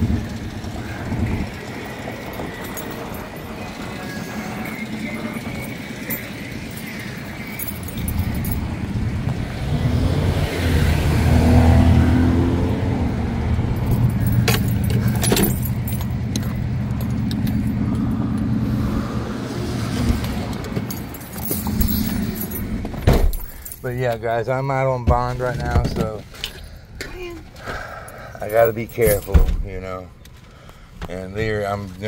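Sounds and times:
vehicle engine running: 0.0 - 23.8
keys jangling: 1.7 - 8.8, 13.7 - 18.4, 20.3 - 24.2, 28.1 - 29.8
truck door opening: 20.0 - 23.5, 29.0 - 29.8.

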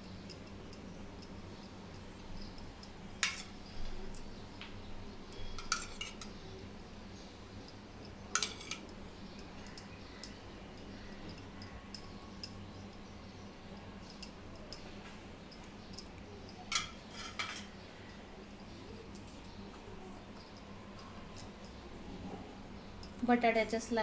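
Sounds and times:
metallic spoon clinks: 5.3 - 6.3, 14.0 - 14.9, 15.5 - 19.3.

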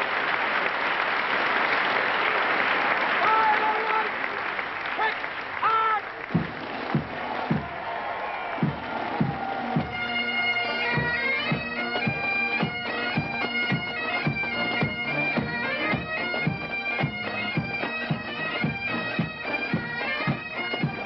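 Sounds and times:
low drum beat: 6.3 - 10.2
bagpipe melody with drone: 9.5 - 21.0.

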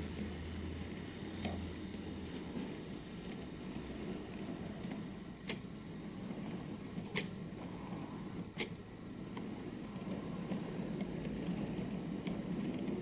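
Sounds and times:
model train wheels rumbling: 0.0 - 13.0
wheels clicking over rail joints: 8.3 - 13.0.

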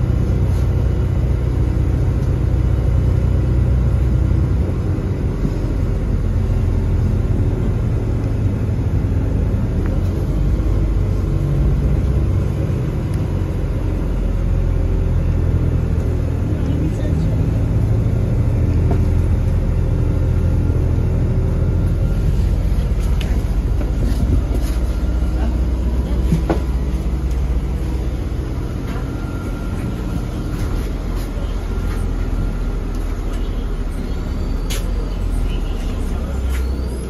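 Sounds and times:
bus engine drone: 0.0 - 37.0
road noise: 0.0 - 37.0.

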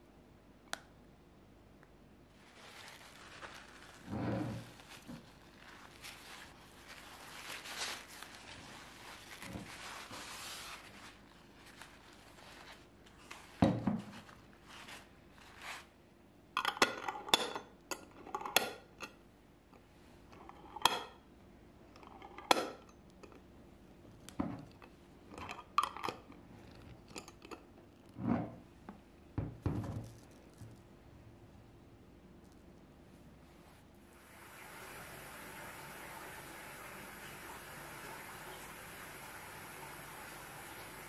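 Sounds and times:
paper towel rustling on glass: 2.3 - 16.0.

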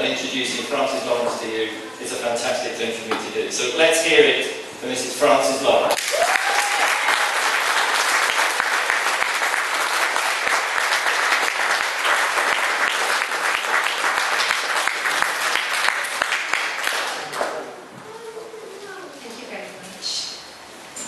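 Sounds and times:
audience applauding: 5.9 - 17.7.

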